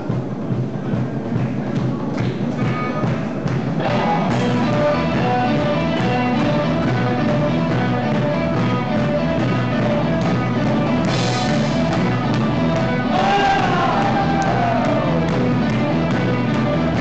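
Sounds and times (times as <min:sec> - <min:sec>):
rock band playing: 0:03.8 - 0:17.0.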